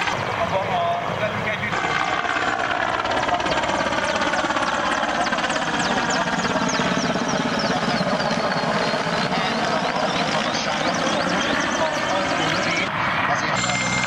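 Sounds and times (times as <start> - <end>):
helicopter rotor chop: 0.0 - 14.0
turbine whine: 0.0 - 14.0.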